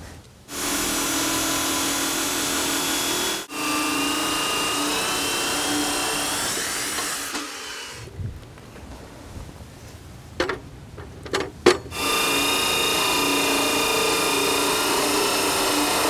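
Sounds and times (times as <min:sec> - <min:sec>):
high-pitched saw whine: 0:00.5 - 0:08.0, 0:12.0 - 0:16.0
chop saw cutting steel: 0:00.5 - 0:08.1, 0:11.9 - 0:16.0.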